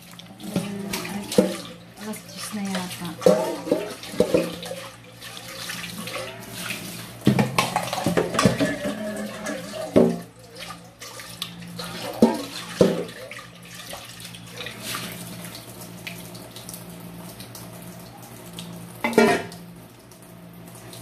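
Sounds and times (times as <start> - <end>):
tap water running into sink: 0.0 - 21.0
metal pots clanking: 3.1 - 4.8, 7.3 - 10.3, 19.1 - 19.5.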